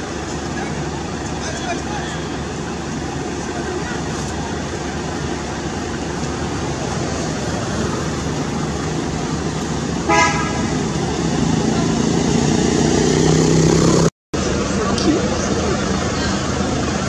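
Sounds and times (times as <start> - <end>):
traffic rumble: 0.0 - 17.0
vehicle horn toot: 10.0 - 10.8.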